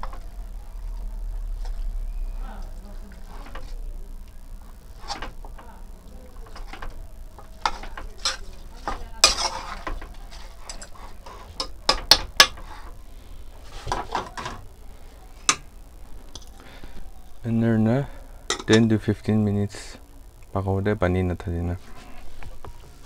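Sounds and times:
metal spoon scraping pot: 7.6 - 13.0.

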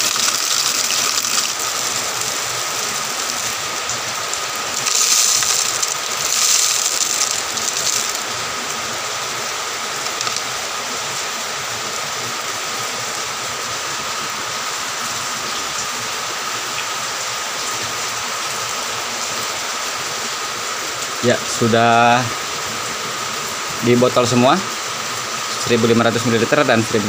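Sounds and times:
granules pouring into plastic bottle: 0.0 - 8.9, 9.9 - 10.6
background hiss: 0.0 - 11.9.

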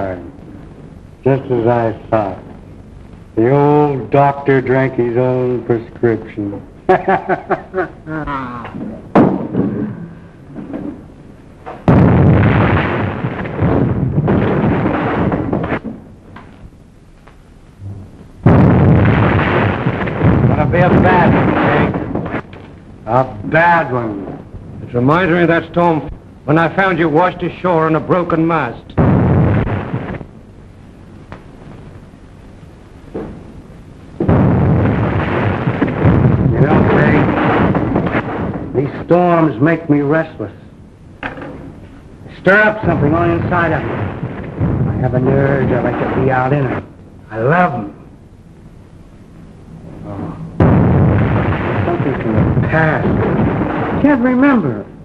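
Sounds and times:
thunder crack and rumble: 10.5 - 16.1, 17.8 - 26.3, 34.2 - 39.6, 42.5 - 46.9, 49.9 - 55.0.

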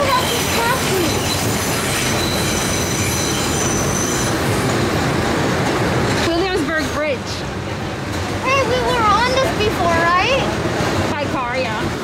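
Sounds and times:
high-pitched wheel squeal: 0.0 - 4.7
train wheels rumbling on rails: 0.0 - 12.0.

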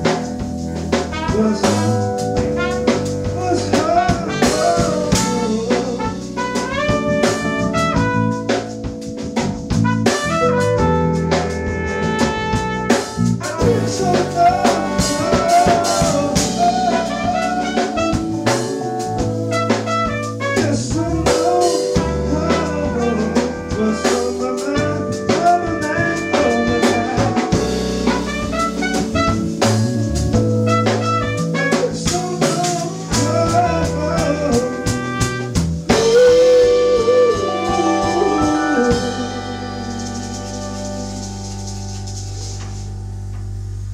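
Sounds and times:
live band playing soul-funk: 0.0 - 43.7
wavering lead note: 10.9 - 35.0, 35.9 - 43.6.

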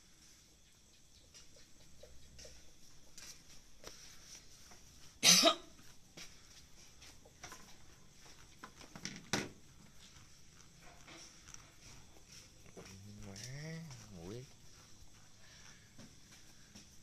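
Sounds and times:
person coughing: 5.2 - 5.7.

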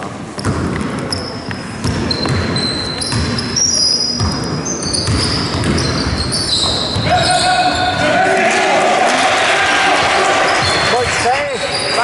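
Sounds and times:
basketball bouncing: 0.0 - 7.1
shoes squeaking on court: 0.0 - 8.0, 10.5 - 12.0.

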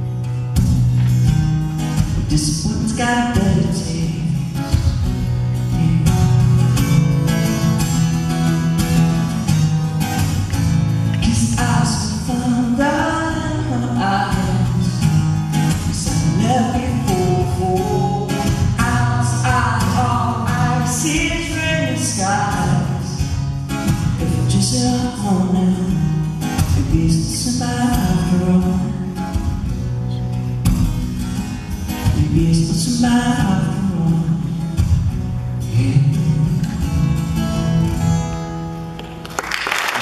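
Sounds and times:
strummed acoustic guitar: 0.0 - 39.4
man singing: 2.2 - 7.0, 11.1 - 29.6, 32.0 - 37.2.

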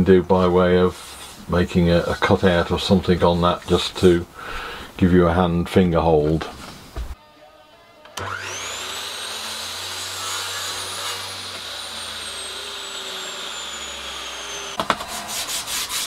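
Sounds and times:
mitre saw whining: 7.2 - 16.0.

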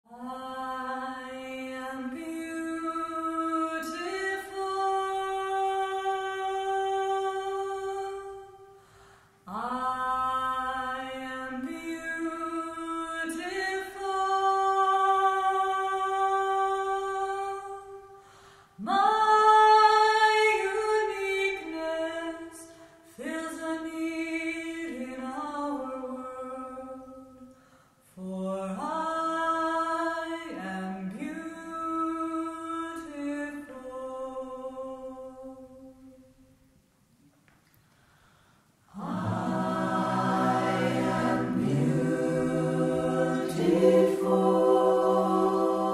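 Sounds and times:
group singing a cappella: 0.1 - 8.7, 9.5 - 18.1, 38.9 - 45.9.

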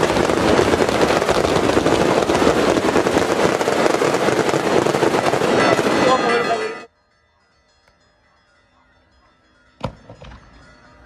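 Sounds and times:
firecrackers crackling: 0.0 - 6.9.

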